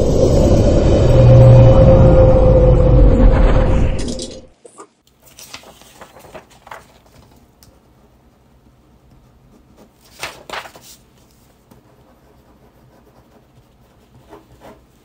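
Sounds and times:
pen scratching on paper: 11.6 - 15.0.

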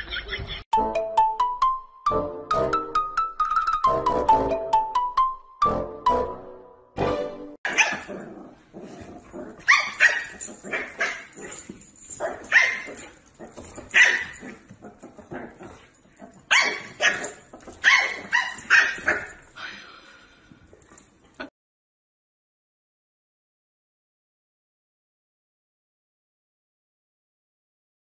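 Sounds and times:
puppy yapping: 7.7 - 8.1, 9.6 - 11.4, 12.3 - 13.1, 13.9 - 14.6, 16.5 - 19.4.

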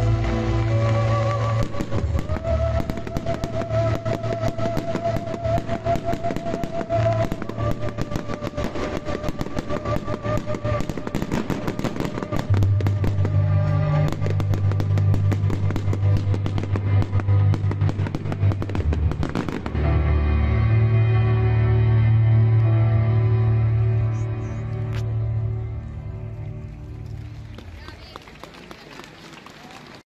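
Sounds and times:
fireworks crackling and popping: 0.0 - 20.3, 26.4 - 30.0
music with deep bass: 0.0 - 27.6.

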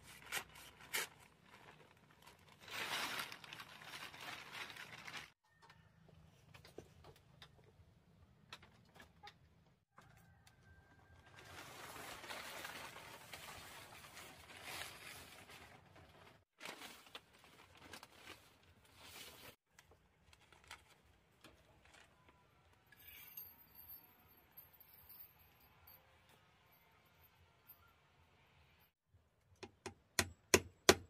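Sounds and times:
plastic tarpaulin rustling: 0.0 - 5.4, 11.2 - 19.6.

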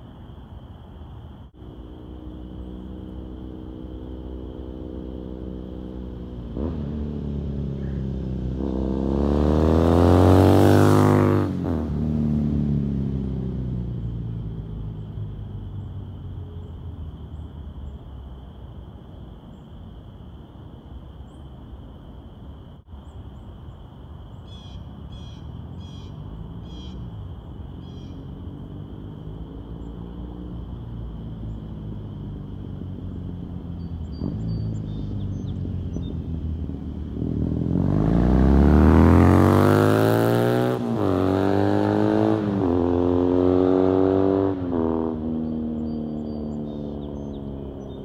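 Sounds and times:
faint traffic: 0.0 - 48.0
motorcycle passing at speed: 1.5 - 17.4, 24.5 - 48.0
bird chirping: 24.3 - 27.1, 27.7 - 28.6, 33.1 - 36.5, 45.2 - 48.0.

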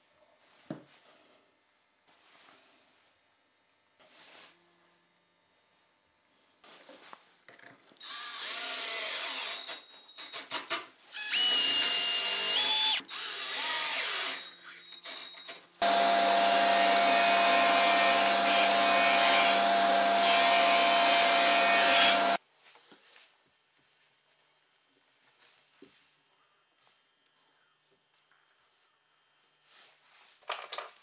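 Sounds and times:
cordless drill driving screws: 8.0 - 9.8, 11.2 - 22.4
table saw cutting plywood: 15.8 - 22.4.

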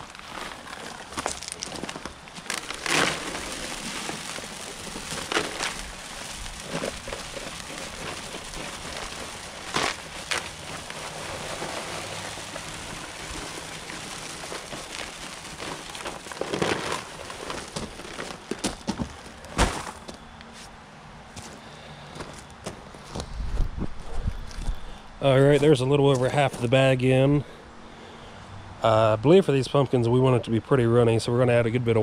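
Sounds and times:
dry mix pouring into tub: 0.0 - 20.2
sack knocking: 0.0 - 20.2.

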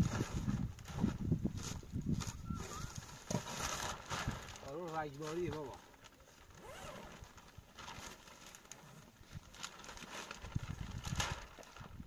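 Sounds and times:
plastic sheeting crinkling: 0.0 - 12.0.

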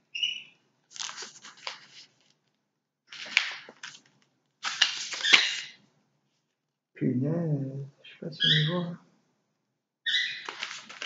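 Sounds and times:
paper rustling with sharp snaps: 0.9 - 5.8, 10.4 - 11.0.

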